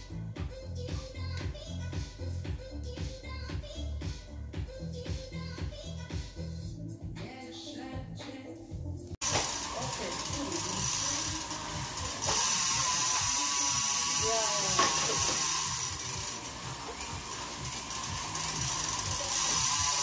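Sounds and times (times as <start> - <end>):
bike chain and hub whirring: 9.2 - 20.0.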